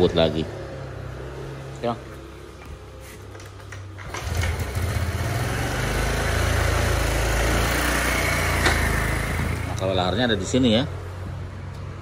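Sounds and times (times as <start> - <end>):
scooter kick-start: 3.4 - 9.8
scooter engine running: 4.0 - 9.8.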